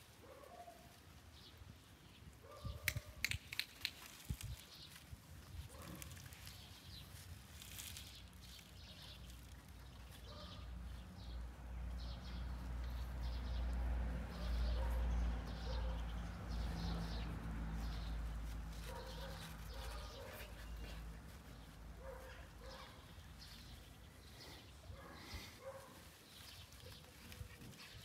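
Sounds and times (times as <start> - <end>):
birds chirping: 5.6 - 28.0.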